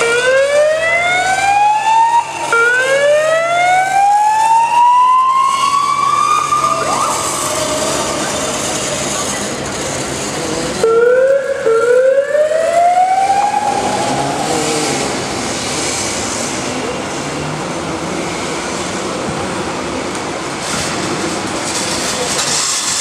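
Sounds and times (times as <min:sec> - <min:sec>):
siren wailing: 0:00.0 - 0:09.3, 0:10.8 - 0:15.2
street noise: 0:00.0 - 0:23.0.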